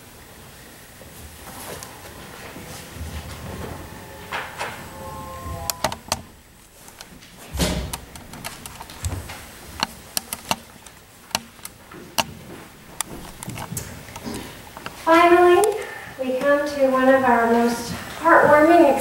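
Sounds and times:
clicks and knocks of handling objects: 6.8s - 15.0s.

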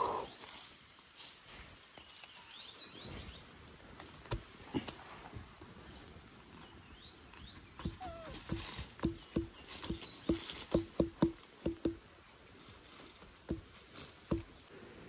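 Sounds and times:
high chirping calls: 6.0s - 8.5s.

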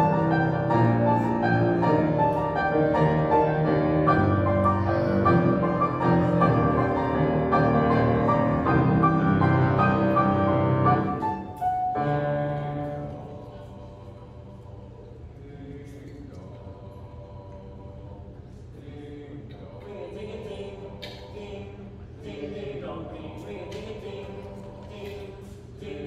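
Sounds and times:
grand piano playing: 0.0s - 13.2s.

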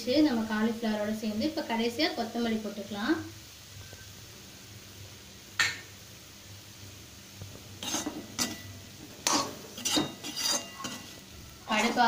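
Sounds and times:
metal spatula clinking on wok: 7.8s - 8.7s, 9.3s - 12.0s
metal spatula scraping wok: 7.8s - 12.0s.

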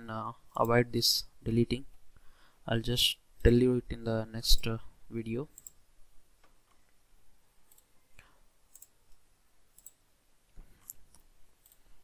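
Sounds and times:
computer mouse clicks: 5.6s - 5.8s, 7.7s - 7.9s, 8.7s - 10.0s, 10.8s - 11.9s.

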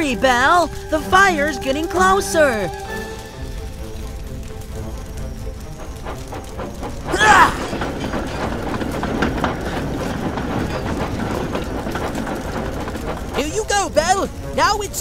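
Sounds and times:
train clattering along track: 0.0s - 15.0s.

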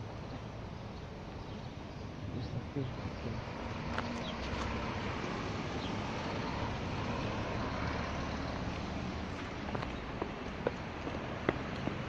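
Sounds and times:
vehicle passing on road: 0.0s - 12.0s.

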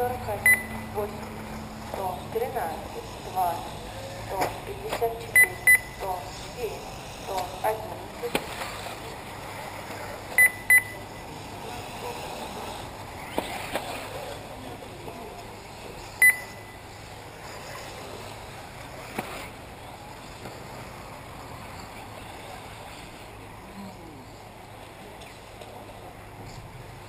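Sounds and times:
short high electronic beeps: 0.4s - 0.8s, 5.4s - 6.0s, 10.4s - 11.0s, 16.2s - 16.8s.

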